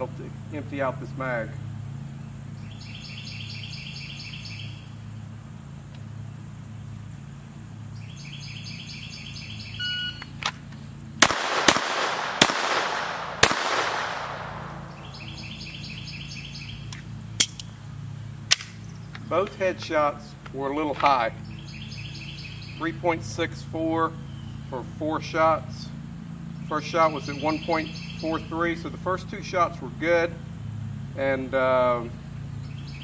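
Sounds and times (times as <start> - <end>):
pistol shots with echo: 11.2 - 15.2
rhythmic chirping: 14.4 - 17.4.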